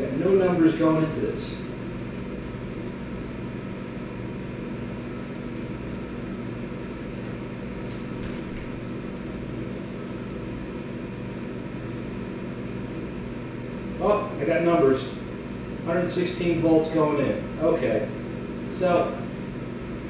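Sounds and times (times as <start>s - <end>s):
mains hum: 0.0s - 20.0s
microwave fan noise: 0.0s - 20.0s.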